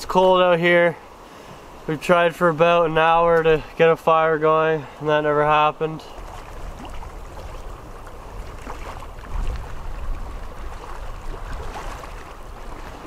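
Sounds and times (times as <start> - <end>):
small waves lapping on rocks: 0.3 - 13.0
wind buffeting microphone: 6.2 - 13.0.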